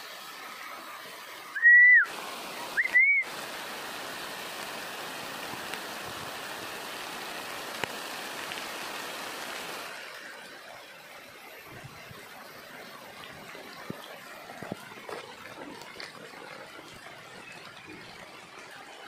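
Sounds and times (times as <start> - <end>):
steady hiss: 0.0 - 16.8
loud whistled notes: 1.5 - 2.1, 2.8 - 3.3.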